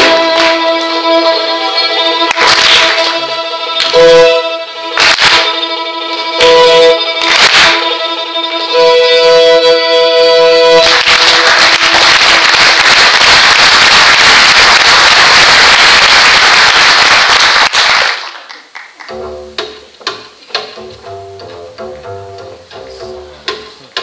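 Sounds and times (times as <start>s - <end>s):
plucked strings and double bass: 0.0s - 10.8s, 19.1s - 24.0s
string ensemble holding chord: 0.0s - 10.9s.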